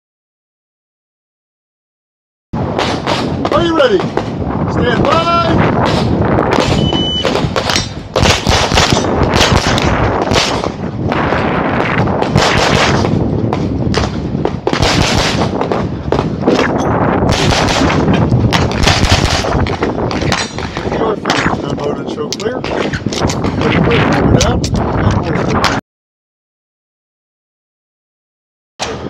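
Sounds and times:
rapid pistol shots: 2.7s - 4.4s, 5.1s - 11.2s, 11.8s - 13.2s, 13.9s - 21.6s.

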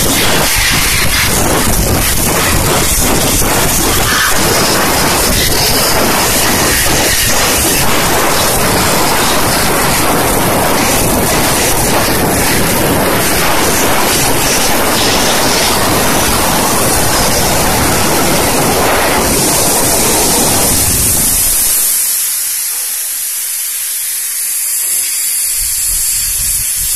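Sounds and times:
steam jet hissing: 0.0s - 26.9s.

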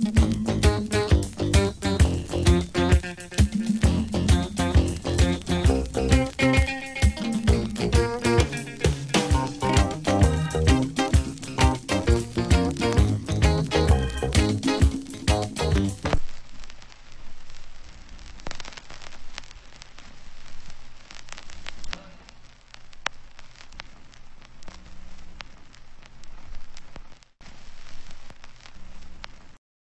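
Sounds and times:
reggae music: 0.0s - 16.2s
vinyl record crackle and pops: 0.0s - 29.6s.

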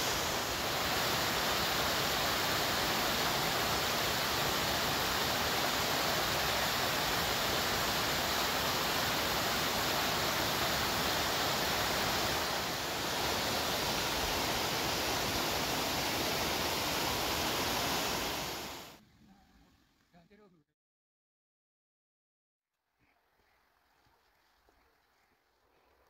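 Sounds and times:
stream rushing over rocks: 0.0s - 19.0s.

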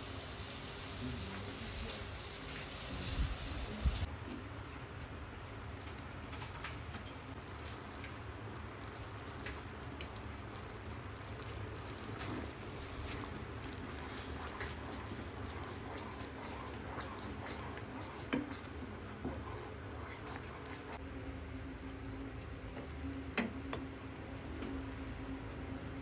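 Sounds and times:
sauce simmering and bubbling: 0.0s - 21.0s
wooden spatula stirring: 11.8s - 21.0s.

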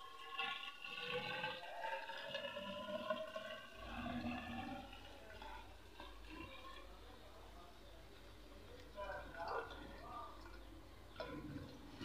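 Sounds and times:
petrol gurgling into glass cylinder: 0.0s - 8.4s.

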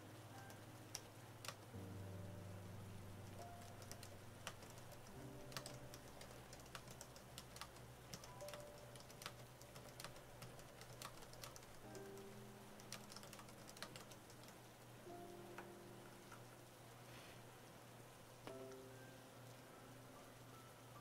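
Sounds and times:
soft piano music: 0.0s - 21.0s
keys clicking while typing: 0.3s - 1.8s, 3.3s - 14.6s.

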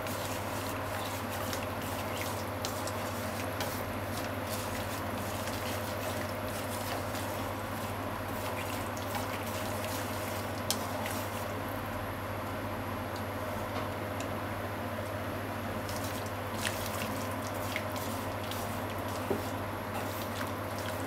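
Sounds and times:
sauce simmering and bubbling: 0.0s - 11.5s.

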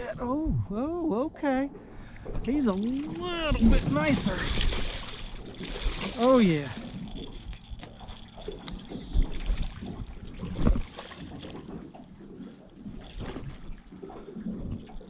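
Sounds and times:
fish splashing at surface: 2.7s - 12.0s.

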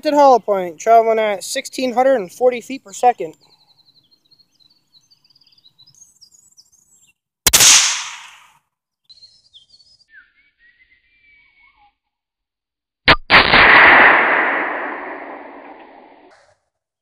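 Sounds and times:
birds chirping: 0.0s - 7.2s, 9.0s - 12.0s
rifle shot: 7.5s - 8.5s, 13.1s - 16.3s.

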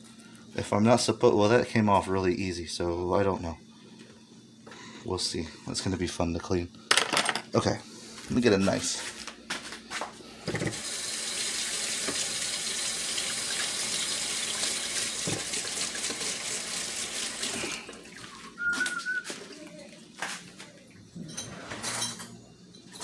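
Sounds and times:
faucet running into sink: 10.6s - 18.4s.

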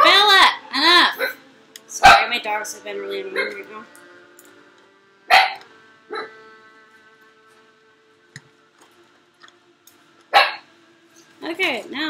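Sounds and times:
faint music: 0.0s - 12.0s
dog barking: 2.0s - 2.3s, 5.3s - 6.3s, 10.4s - 10.6s.

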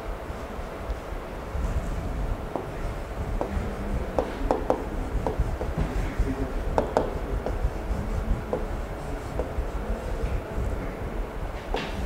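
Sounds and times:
low room rumble: 0.0s - 12.0s.

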